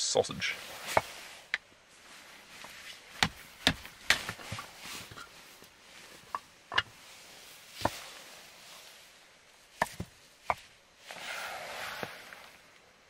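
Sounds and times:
firewood knocking: 0:03.2 - 0:04.7, 0:06.3 - 0:06.9.

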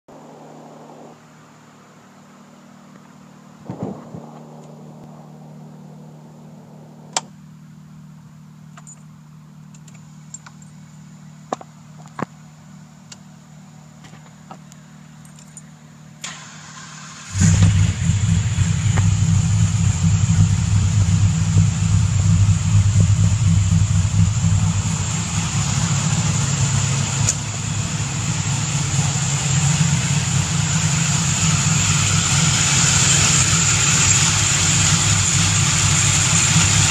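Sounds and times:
low hum: 0:00.0 - 0:36.9
engine starting and idling: 0:16.2 - 0:36.9.

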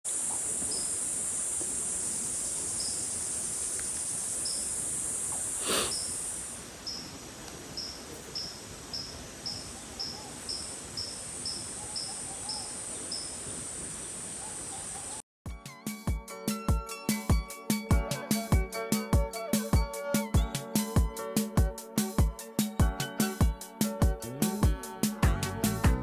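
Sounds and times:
high-pitched insect buzz: 0:00.1 - 0:07.1
short insect chirp: 0:00.1 - 0:15.2.

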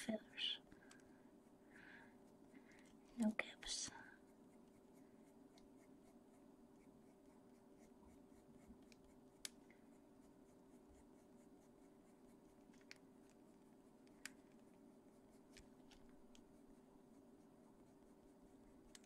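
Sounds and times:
low steady hum: 0:00.0 - 0:19.0
pencil scratching on paper: 0:00.0 - 0:19.0
small sharp clicks: 0:14.0 - 0:14.6.

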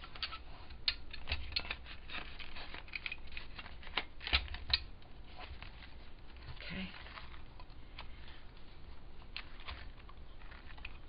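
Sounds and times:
stiff paper rustling: 0:05.3 - 0:11.0.

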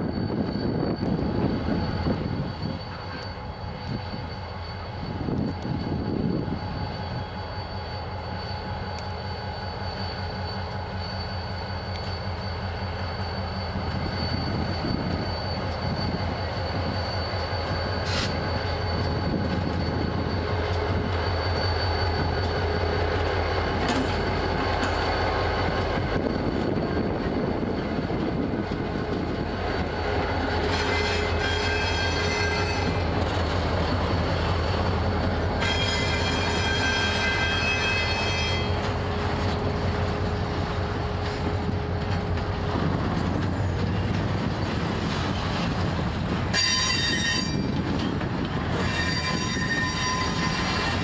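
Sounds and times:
diesel locomotive engine drone: 0:00.0 - 0:51.0
high wheel squeal: 0:00.0 - 0:51.0.

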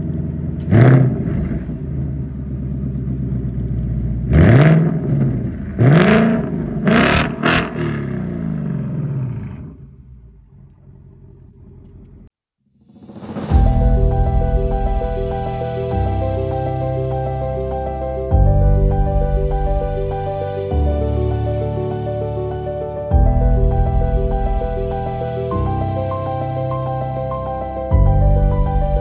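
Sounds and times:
engine revving: 0:00.0 - 0:02.3, 0:04.1 - 0:10.8
car engine idling: 0:00.0 - 0:12.3, 0:13.5 - 0:29.0.

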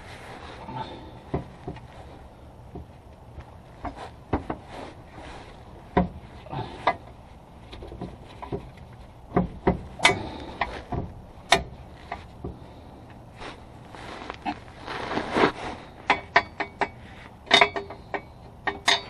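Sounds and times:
metal knocks and clinks: 0:16.1 - 0:19.0.

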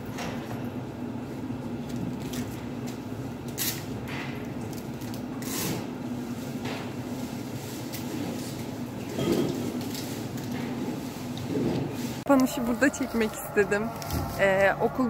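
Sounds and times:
steady low hum: 0:10.7 - 0:15.0.

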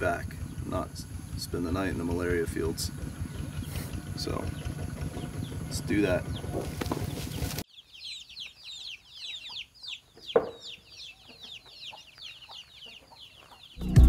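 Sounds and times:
chicks peeping: 0:01.4 - 0:13.8
adult bird call: 0:02.9 - 0:13.8.

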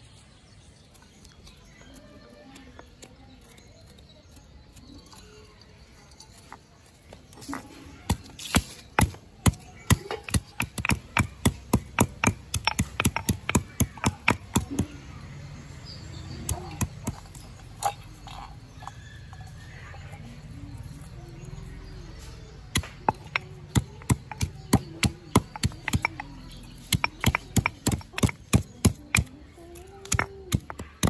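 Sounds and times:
pestle pounding in stone mortar: 0:08.0 - 0:15.1, 0:16.1 - 0:19.5, 0:22.5 - 0:31.0.

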